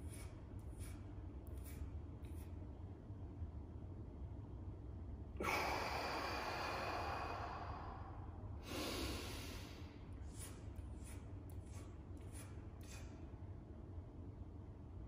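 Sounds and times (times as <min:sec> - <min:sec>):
man breathing forcefully: 0:05.4 - 0:10.5.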